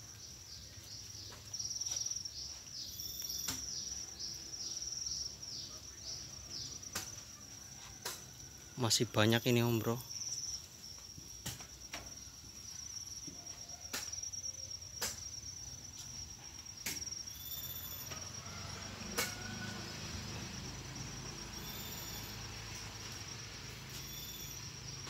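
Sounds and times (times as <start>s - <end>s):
crickets trilling: 0.0s - 25.0s
other cricket calls: 0.0s - 25.0s.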